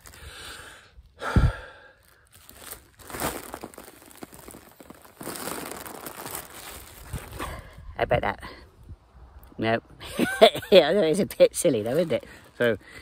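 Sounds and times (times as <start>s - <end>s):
foil balloon crinkling: 0.0s - 0.4s, 2.0s - 7.6s, 11.6s - 12.8s.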